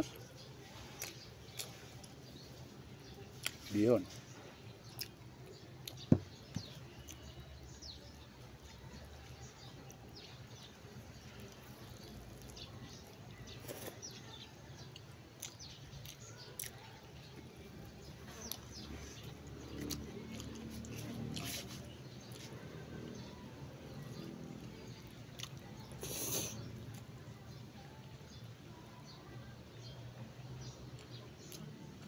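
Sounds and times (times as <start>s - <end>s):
man chewing and lip smacking: 4.8s - 5.2s, 5.8s - 6.1s, 14.9s - 16.9s, 25.3s - 27.0s.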